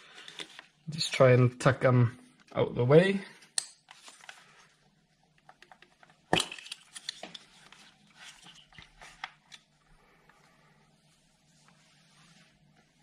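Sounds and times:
rustling of wiring: 6.6 - 10.5.

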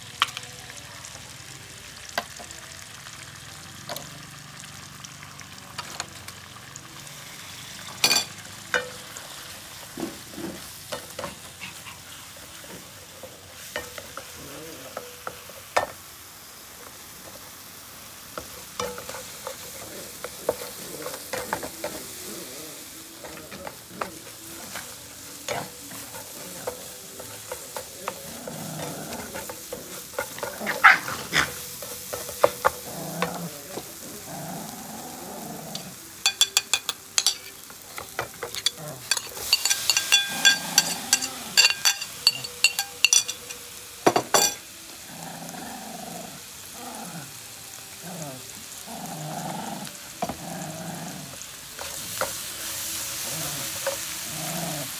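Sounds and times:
food sizzling in frying pan: 0.0 - 54.9
metal utensils scraping pan: 23.2 - 33.8, 35.7 - 44.6.

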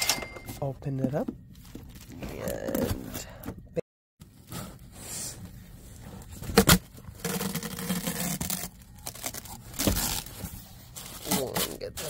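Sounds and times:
knife cutting packing tape: 6.6 - 10.3
tape tearing open: 6.6 - 10.4.

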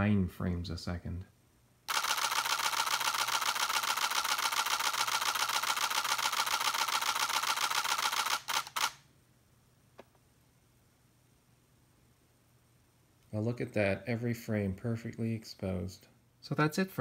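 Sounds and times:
camera shutter burst: 1.9 - 9.1.

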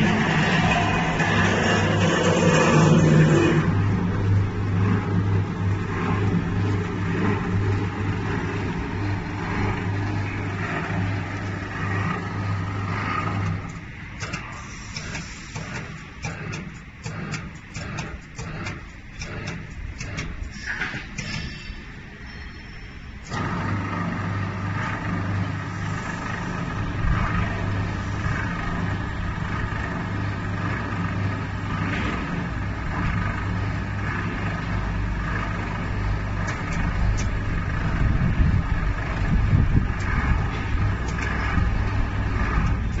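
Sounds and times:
powder mixer motor humming: 0.0 - 20.5, 23.3 - 43.0.

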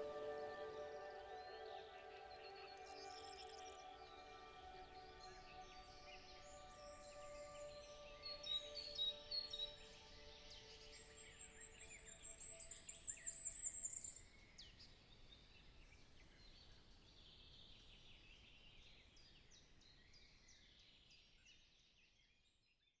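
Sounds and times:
soft music notes: 0.0 - 13.8.

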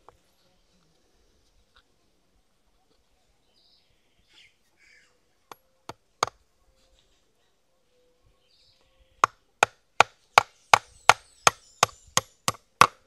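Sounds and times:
hammer driving nails into wood: 9.2 - 13.0.

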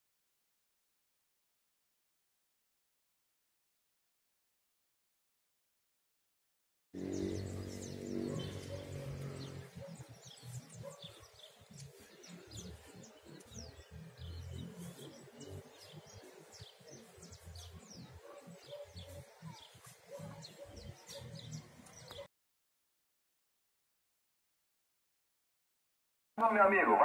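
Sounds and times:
small birds chirping: 7.0 - 22.3.

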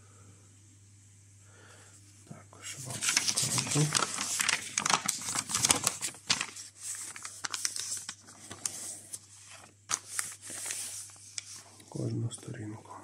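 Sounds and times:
paper rustling and crinkling: 2.6 - 12.4.

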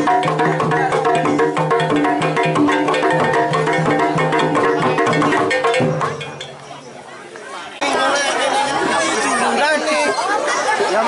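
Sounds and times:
hand drums beating: 0.0 - 6.7
ringing tuned percussion: 0.0 - 6.8.

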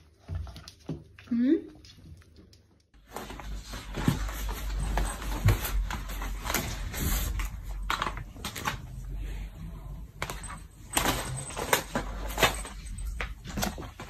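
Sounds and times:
cats scuffling on wooden floor: 3.0 - 8.9.

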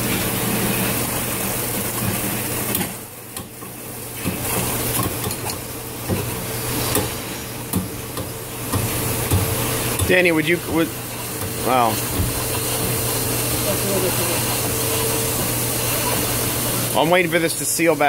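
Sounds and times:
steam trap hissing and sputtering: 6.2 - 18.0.

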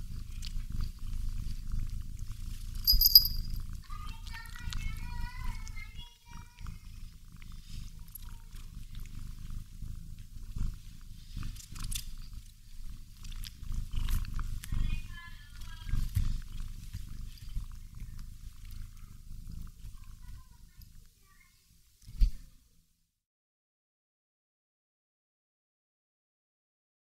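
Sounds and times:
cat purring: 0.0 - 22.7
rustling and small clicks: 11.5 - 12.2.

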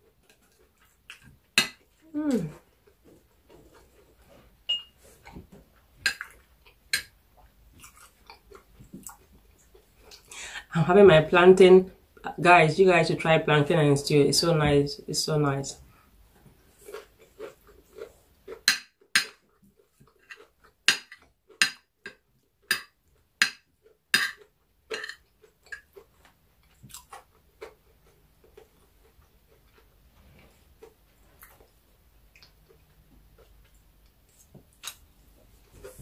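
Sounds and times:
chewing: 0.0 - 10.3, 15.9 - 22.2, 23.1 - 36.0
cutlery scraping a plate: 24.2 - 25.9.

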